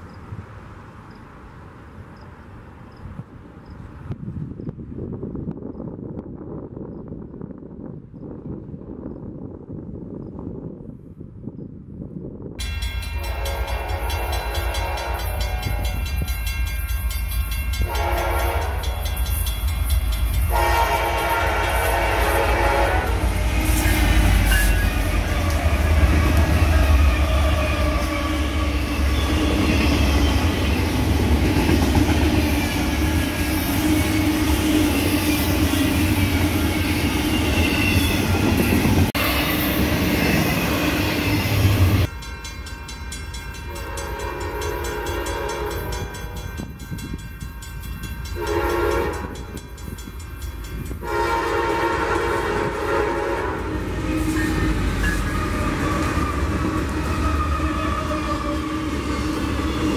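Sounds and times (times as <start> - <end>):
train horn: 12.6 - 16.4, 17.7 - 19.4, 20.4 - 30.8, 43.5 - 46.7, 48.2 - 49.6, 50.9 - 59.9
distant train horn blasts: 12.6 - 16.8, 17.5 - 46.8, 48.2 - 49.7, 50.8 - 59.9
locomotive engine rumble: 17.3 - 42.1.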